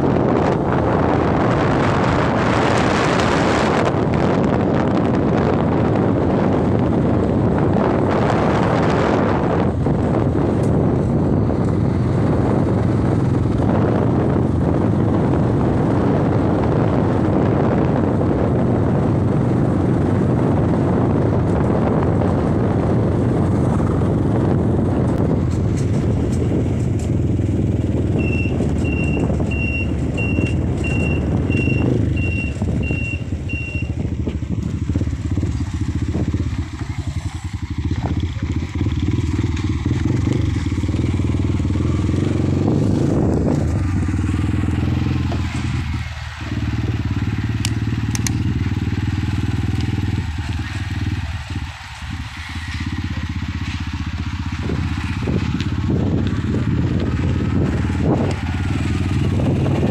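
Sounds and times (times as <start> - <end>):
dirt bike engine running: 0.0 - 59.9
short high beeps: 28.2 - 33.9.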